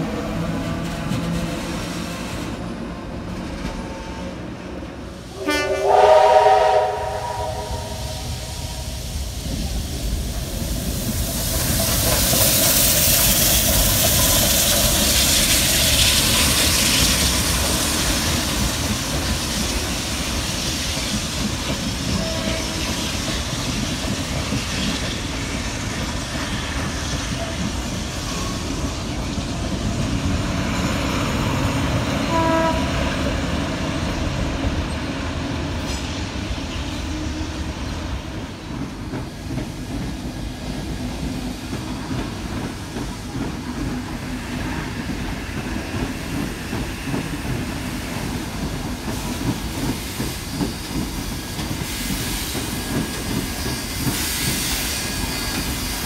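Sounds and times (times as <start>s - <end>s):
train running rumble: 0.0s - 56.0s
train horn blast: 3.8s - 4.6s, 5.3s - 9.0s, 22.2s - 22.8s, 32.2s - 33.0s.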